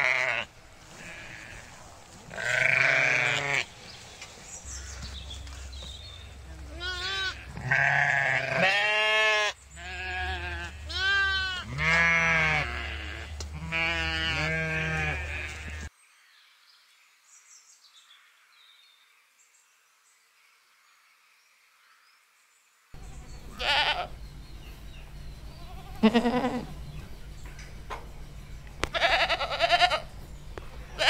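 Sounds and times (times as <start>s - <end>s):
goats bleating: 0.0s - 3.7s, 6.6s - 15.9s, 23.5s - 24.2s, 25.5s - 27.0s, 28.8s - 30.1s
sheep bleating: 0.0s - 3.7s, 6.7s - 15.9s, 23.5s - 24.1s, 25.5s - 26.8s, 28.8s - 30.1s
steady low hum: 23.0s - 31.0s.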